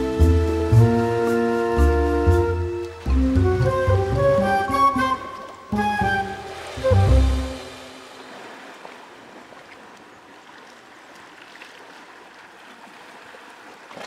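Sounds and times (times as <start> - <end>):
sea water lapping against rocks: 2.8 - 14.0.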